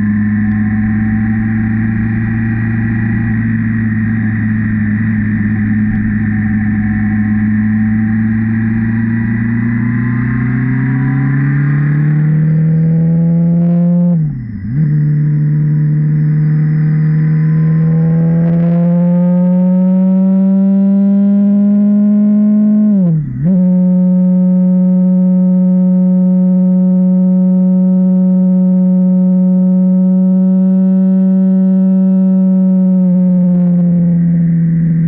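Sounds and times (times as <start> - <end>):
motorcycle engine humming: 0.0 - 35.0.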